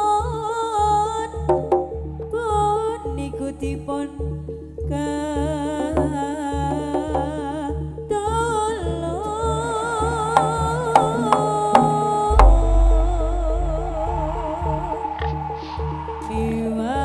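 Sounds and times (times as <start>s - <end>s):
steady low drum beat: 1.4s - 2.4s, 6.8s - 7.5s, 10.4s - 15.6s
sharp drum strokes: 1.5s - 2.1s, 10.4s - 16.3s
wavering melodic lead line: 9.6s - 15.5s.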